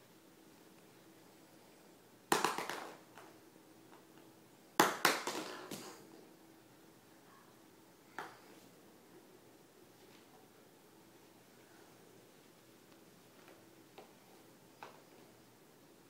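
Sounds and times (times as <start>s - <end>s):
plastic eggs clattering on wooden table: 2.3s - 3.3s, 4.8s - 5.9s.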